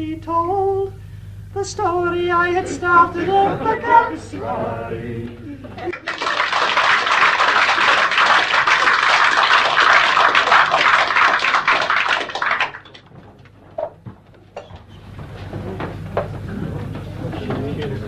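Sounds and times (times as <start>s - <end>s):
audience applauding: 5.8s - 13.1s.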